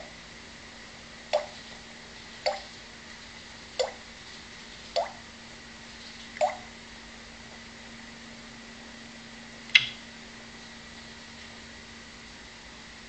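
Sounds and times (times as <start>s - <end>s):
parrot clicking: 9.7s - 10.0s.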